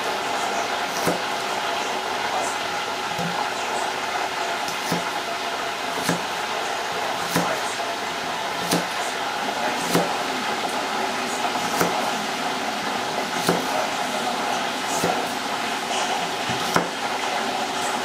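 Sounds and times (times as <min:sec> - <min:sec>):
knife chopping on wooden board: 0:04.7 - 0:05.1, 0:06.0 - 0:06.3, 0:07.2 - 0:07.6, 0:08.6 - 0:08.9, 0:09.9 - 0:10.2, 0:11.6 - 0:12.0, 0:13.4 - 0:13.7, 0:16.4 - 0:17.0.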